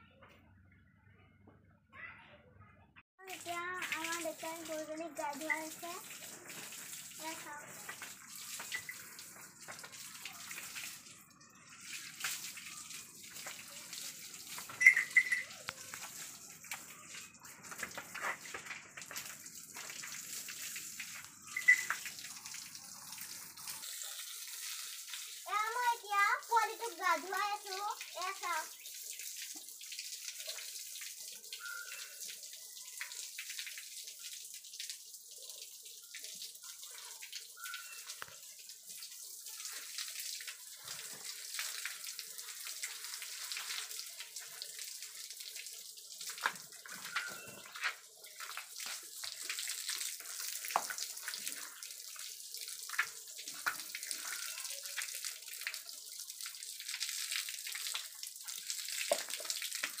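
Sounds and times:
hose water spraying: 3.2s - 11.1s, 11.8s - 30.5s
water splashing on floor: 3.2s - 11.1s, 11.7s - 60.0s.

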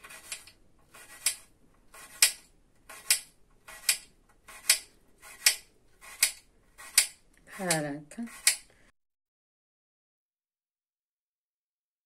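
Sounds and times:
knife slicing apple: 0.0s - 8.7s.

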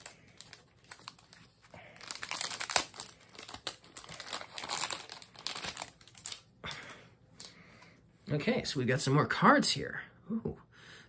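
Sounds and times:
plastic wrapping crinkling: 0.0s - 6.8s.

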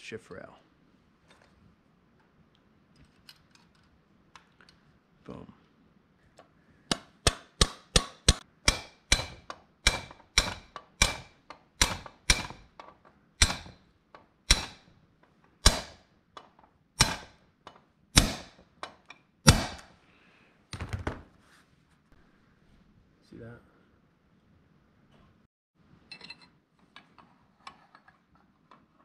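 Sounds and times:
hammer tapping metal drift: 6.9s - 14.9s, 15.6s - 17.4s.

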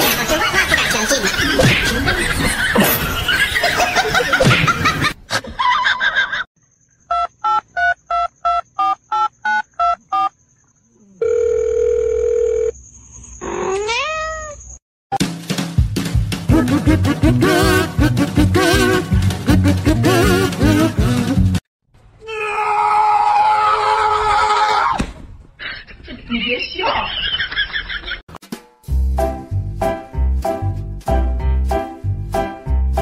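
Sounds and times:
cat meowing: 13.6s - 14.6s
music with voices: 15.2s - 21.6s.

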